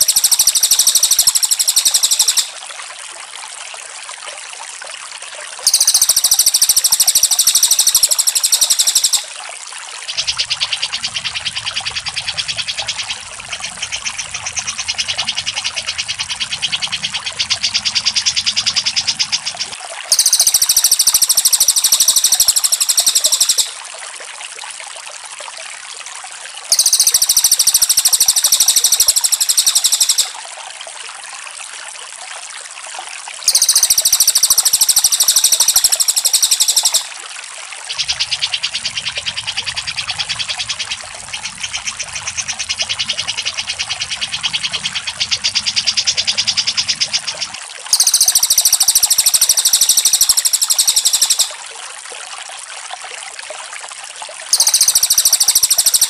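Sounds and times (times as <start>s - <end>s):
lower chattering bird trill: 0.0s - 2.5s, 5.7s - 9.3s, 10.1s - 23.8s, 26.7s - 30.4s, 33.5s - 37.1s, 42.4s - 51.6s, 54.5s - 56.0s
high-pitched bird trills: 0.0s - 2.6s, 5.7s - 9.4s, 16.6s - 23.8s, 26.7s - 30.4s, 33.4s - 37.1s, 43.8s - 51.6s, 54.5s - 56.0s.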